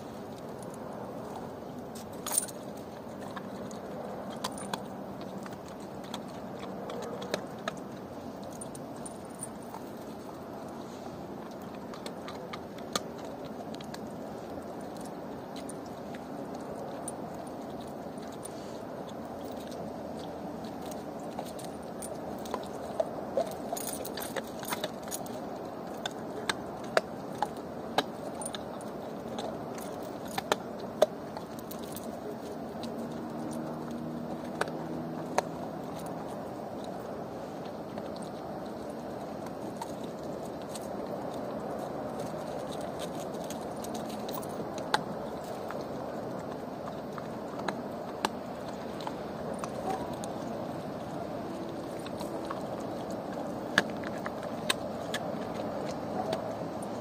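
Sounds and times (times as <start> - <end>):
dog chewing bones: 0.0 - 57.0
chain clinking: 0.4 - 7.8, 20.9 - 26.2, 28.1 - 30.7, 31.4 - 34.0, 42.1 - 46.0
metal chain clinking: 2.0 - 3.7, 23.4 - 25.4.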